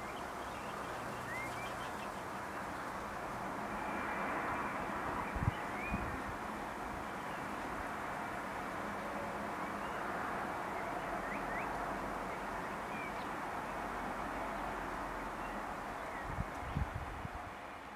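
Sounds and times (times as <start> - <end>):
small birds chirping: 0.0 - 3.1, 10.7 - 13.8.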